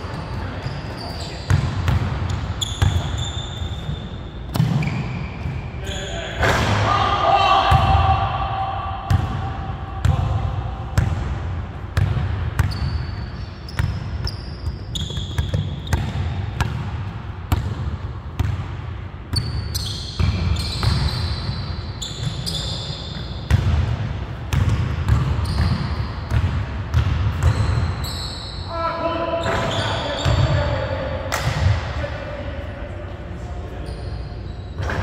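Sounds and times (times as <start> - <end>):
sneaker squeaks: 0.0 - 6.5, 12.6 - 16.4, 19.3 - 23.8, 24.6 - 26.4, 27.3 - 30.8, 33.7 - 35.0.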